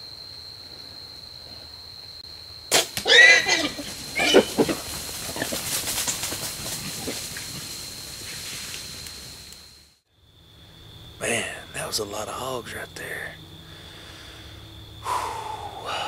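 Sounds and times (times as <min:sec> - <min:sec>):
bow shot crack: 0:02.7 - 0:03.1
hog squealing loudly: 0:03.0 - 0:04.6
rustles and thuds: 0:03.7 - 0:08.9.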